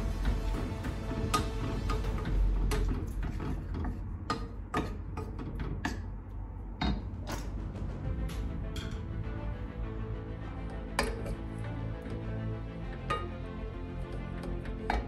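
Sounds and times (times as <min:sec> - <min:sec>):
wooden spoon scraping metal pot: 0:00.0 - 0:06.0, 0:14.0 - 0:15.0.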